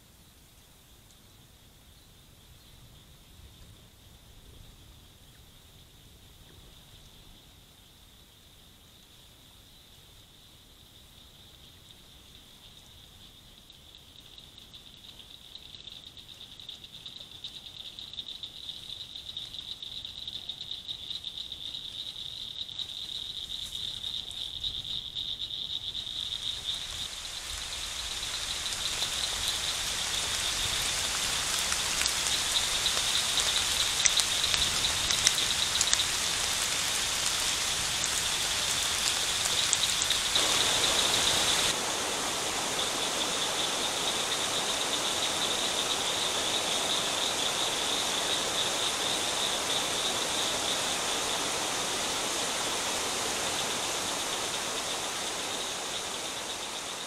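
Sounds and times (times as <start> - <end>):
frogs or insects calling: 0.0 - 57.0
rainstorm water noise: 11.8 - 57.0.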